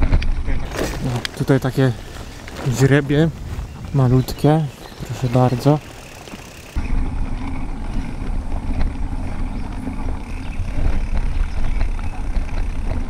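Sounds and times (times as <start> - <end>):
bicycle tyres rolling on dirt: 0.0 - 13.0
wind rumbling on microphone: 0.0 - 13.0
small ticks and rattles: 4.1 - 6.8, 7.4 - 13.0.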